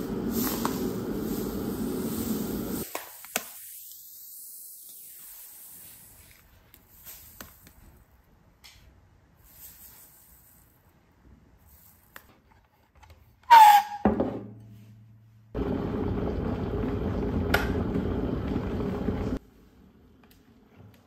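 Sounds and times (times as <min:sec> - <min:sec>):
electric kettle rumbling: 0:00.0 - 0:02.8, 0:15.6 - 0:19.4.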